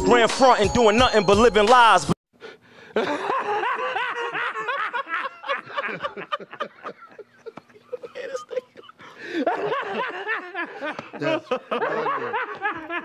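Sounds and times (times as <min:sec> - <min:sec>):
man laughing hard: 0:02.8 - 0:13.0.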